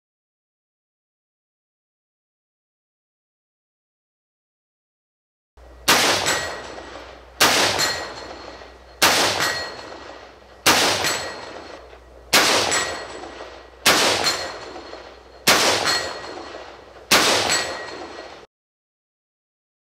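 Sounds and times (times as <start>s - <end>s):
rifle shots echoing: 5.8s - 18.5s.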